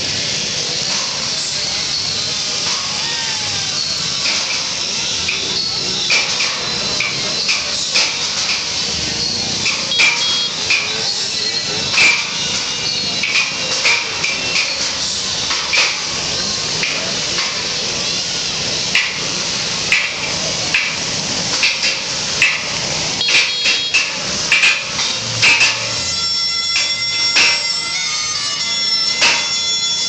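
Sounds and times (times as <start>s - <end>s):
steady noisy din: 0.0s - 30.0s.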